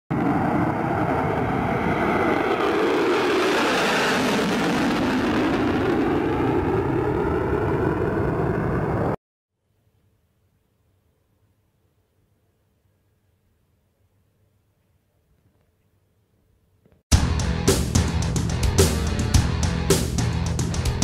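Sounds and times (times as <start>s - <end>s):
fighter jet roar: 0.1s - 9.2s.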